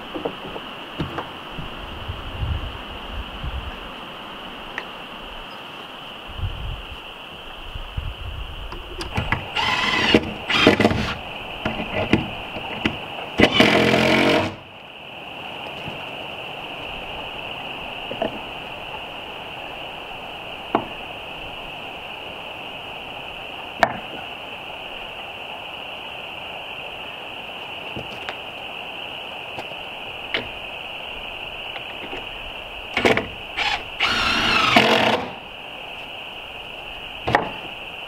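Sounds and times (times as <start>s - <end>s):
high-pitched hiss: 0.0s - 38.0s
cordless drill whirring: 9.2s - 11.2s, 13.4s - 14.6s, 33.6s - 35.4s.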